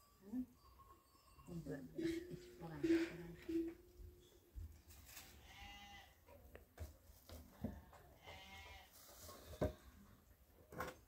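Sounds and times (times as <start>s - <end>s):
livestock bleating: 5.4s - 6.2s, 7.8s - 8.9s.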